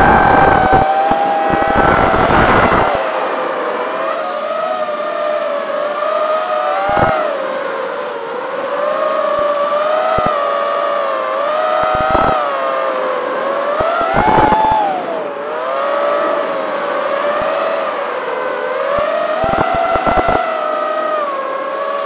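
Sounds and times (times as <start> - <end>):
rumbling noise bursts: 0.0 - 3.0, 19.4 - 20.4
quadcopter motors whining: 0.0 - 22.0.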